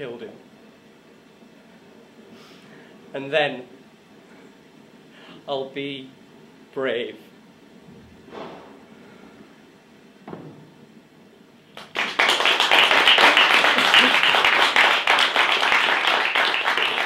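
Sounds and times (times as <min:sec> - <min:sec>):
audience applauding: 0:11.8 - 0:17.0.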